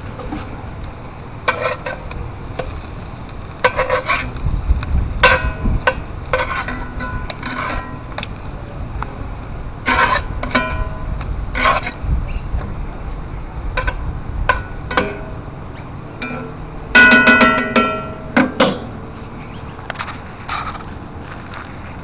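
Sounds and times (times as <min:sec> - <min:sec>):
metal spatula scraping frying pan: 0:01.5 - 0:02.0, 0:03.6 - 0:04.4, 0:05.2 - 0:08.0, 0:09.8 - 0:12.0.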